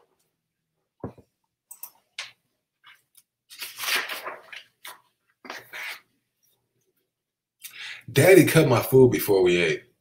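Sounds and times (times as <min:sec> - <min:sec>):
book pages rustling: 0:02.8 - 0:06.0.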